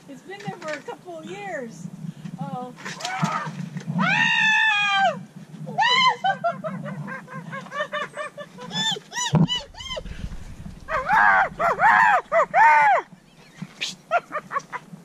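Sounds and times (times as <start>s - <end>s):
low bump: 9.4s - 13.3s.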